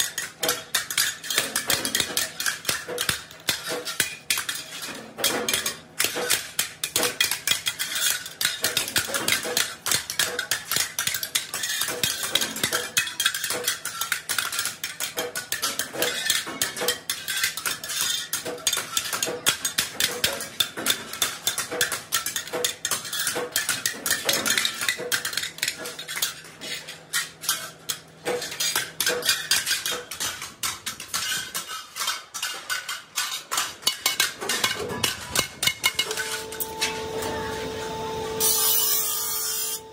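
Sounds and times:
hammer striking steel blades: 33.9 - 39.9.

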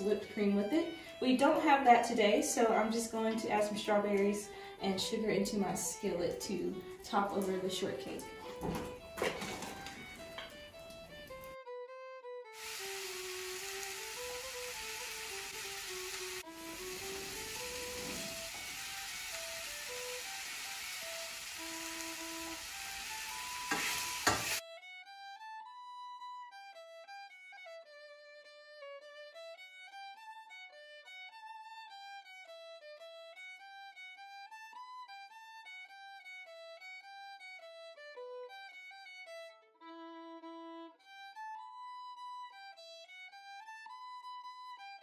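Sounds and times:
fiddle melody: 0.0 - 45.0
fire hissing: 12.6 - 24.6.

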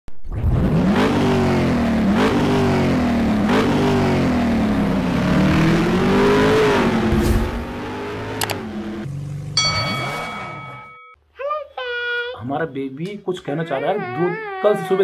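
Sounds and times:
motorcycle engine accelerating: 0.4 - 10.8.

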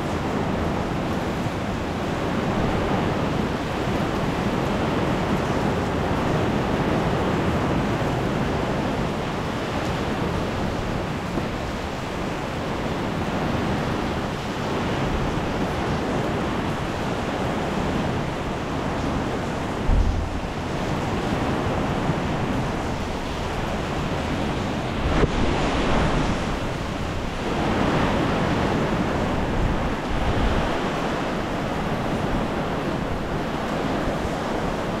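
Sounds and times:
low thumps on microphone: 19.8 - 21.1.

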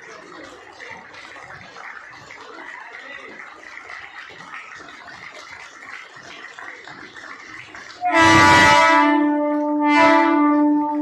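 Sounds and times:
crowd noise on platform: 0.0 - 11.0
train horn chord: 8.0 - 11.0.

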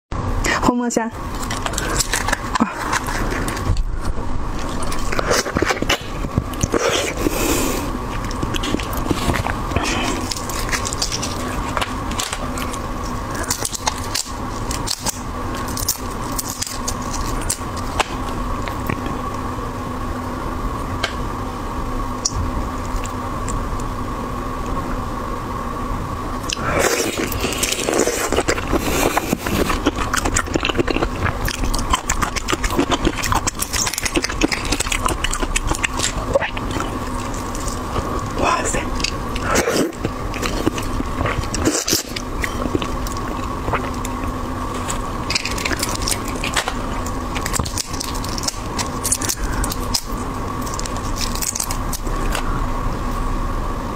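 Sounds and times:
faint steady hum: 0.1 - 53.9
shrimp shells crackling: 39.1 - 52.2.

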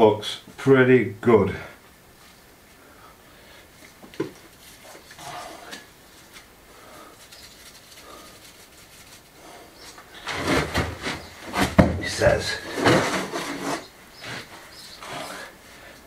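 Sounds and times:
hands scraping wooden window frame: 8.4 - 15.4.

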